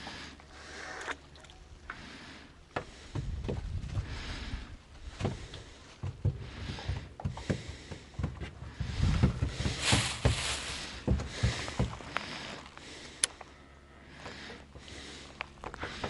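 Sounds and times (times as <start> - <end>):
microphone handling bumps and rustles: 2.9 - 12.8.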